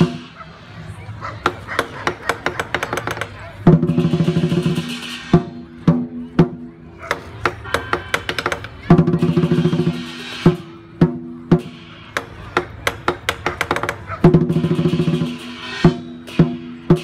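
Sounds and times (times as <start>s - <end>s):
drum beaten in fast rolls: 1.4s - 17.0s
cymbals crashing: 3.9s - 5.9s, 9.2s - 12.4s, 14.4s - 17.0s.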